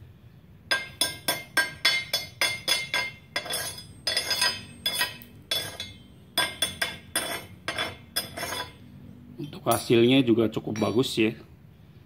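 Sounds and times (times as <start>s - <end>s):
hammer striking metal: 0.7s - 8.8s, 10.7s - 11.2s.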